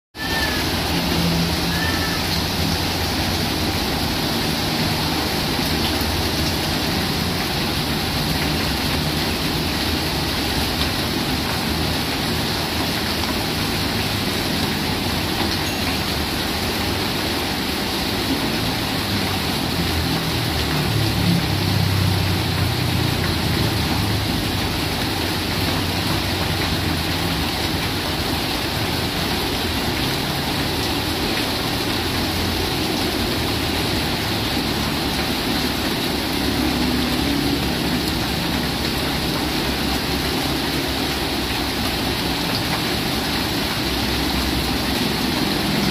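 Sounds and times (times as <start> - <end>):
heavy rain on pavement: 0.1 - 45.9.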